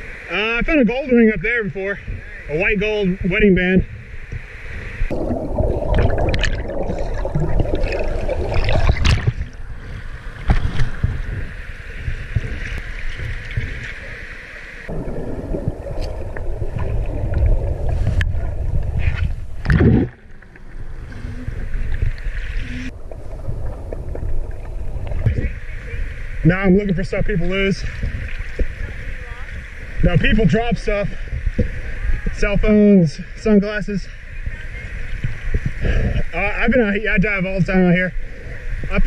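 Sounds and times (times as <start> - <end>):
underwater rushing water rumble: 0.0 - 39.0
water bubbling: 4.0 - 30.3.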